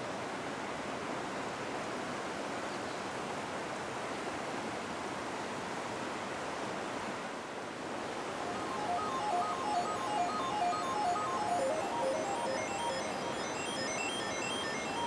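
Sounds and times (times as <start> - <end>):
music with stepped notes: 8.5 - 15.0.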